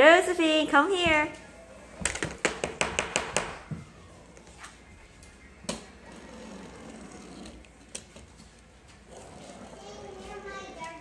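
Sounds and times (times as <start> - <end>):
taps on hardwood floor: 2.0 - 3.9.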